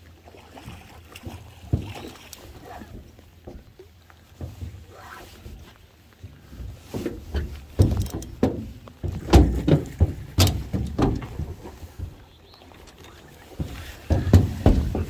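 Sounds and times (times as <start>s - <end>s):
thumps on metal boat hull: 7.4s - 12.1s, 13.6s - 15.0s.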